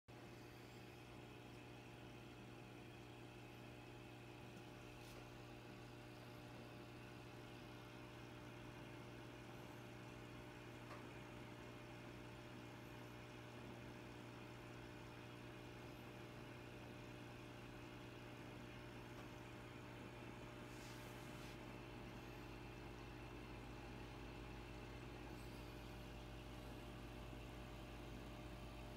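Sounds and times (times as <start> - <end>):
faint low hum: 15.1 - 28.9.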